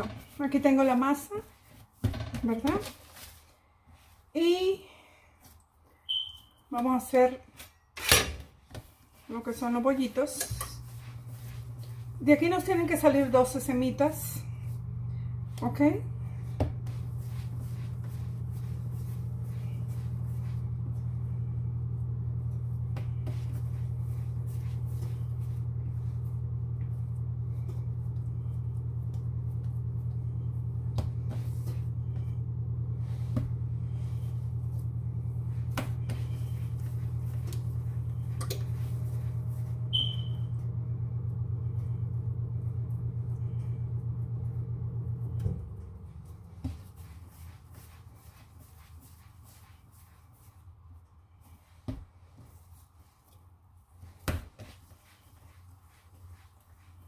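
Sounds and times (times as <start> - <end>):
low hum: 10.4 - 48.8.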